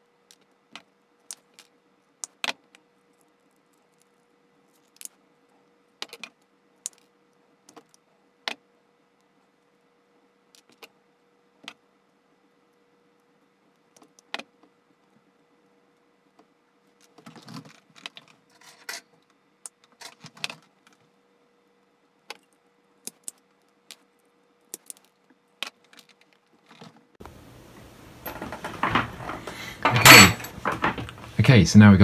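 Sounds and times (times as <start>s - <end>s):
wires rustling: 24.8s - 31.4s
knocks and clatter: 28.2s - 31.2s.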